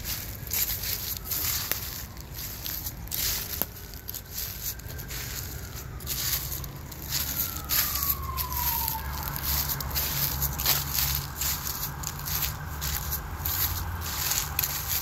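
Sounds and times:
footsteps crunching through dry leaves: 0.0 - 15.0
low traffic rumble: 0.0 - 15.0
faint falling wail: 5.3 - 12.8.

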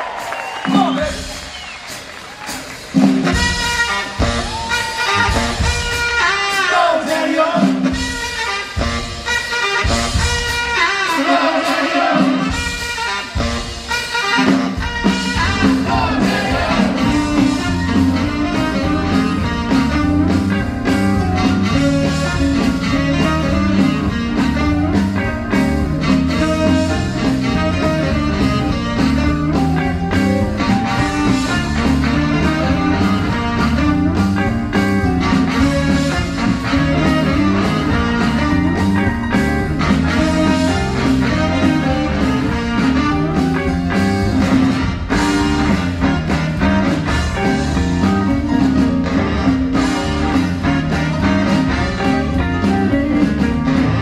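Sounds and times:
drums: 0.0 - 54.0
upright bass: 2.9 - 6.4, 12.2 - 54.0
electric guitar: 14.8 - 54.0.

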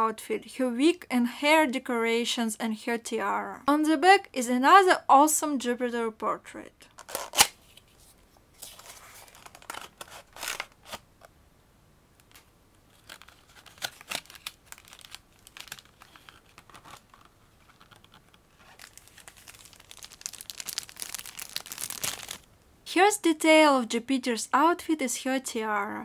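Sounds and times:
plastic packaging crinkling: 7.0 - 11.1, 12.2 - 22.5.

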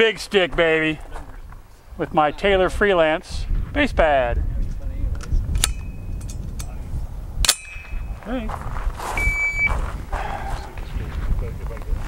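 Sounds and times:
magazine clicking into place: 5.2 - 6.8
short electronic beep: 9.2 - 9.8.

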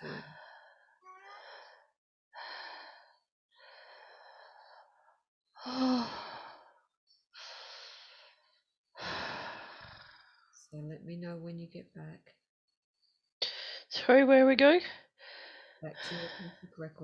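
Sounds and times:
woman sighing: 0.0 - 1.8
woman breathing heavily: 0.0 - 10.6, 15.0 - 16.8.

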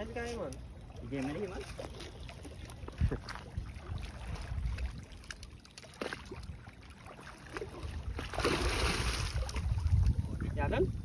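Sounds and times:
water lapping at a jetty: 0.0 - 11.0
wind rumbling on microphone: 2.7 - 5.6, 7.5 - 11.0.

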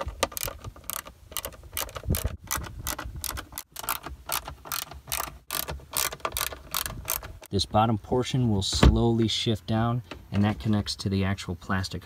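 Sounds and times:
socket ratchet clicking: 0.0 - 7.5.

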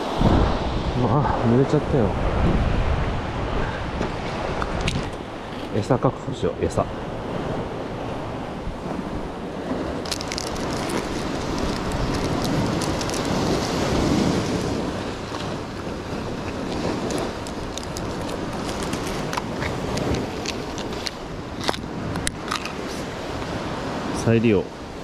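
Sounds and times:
waves: 0.0 - 25.0
wind on microphone: 0.0 - 25.0
plastic package crinkling: 10.0 - 13.4, 17.0 - 21.8.

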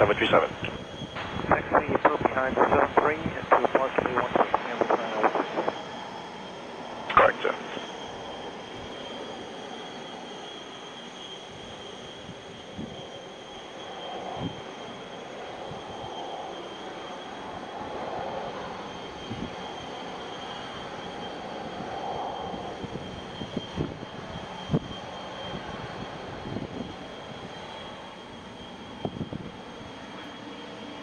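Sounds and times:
distant jet engines whining: 0.0 - 31.0.

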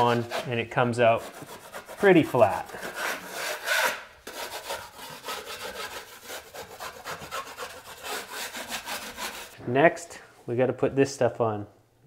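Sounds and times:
drywall knife scraping wall: 0.0 - 9.6.

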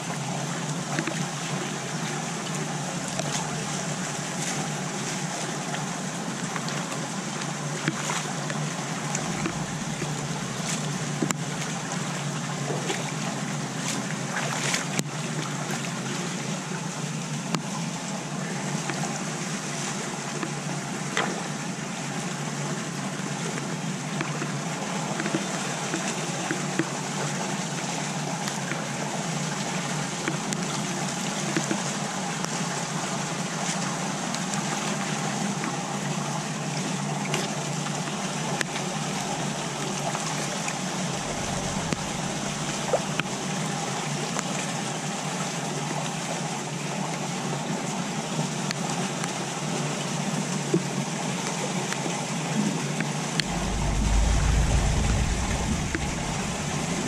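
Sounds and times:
rainwater trickling into drain: 2.8 - 14.6, 40.7 - 44.5
low rumble: 8.7 - 13.2, 40.8 - 44.0, 53.4 - 57.0.

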